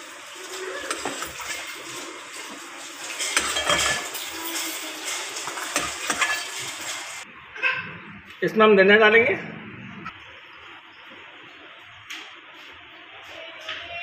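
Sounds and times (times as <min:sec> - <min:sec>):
spoon scraping a pot: 0:00.5 - 0:07.2.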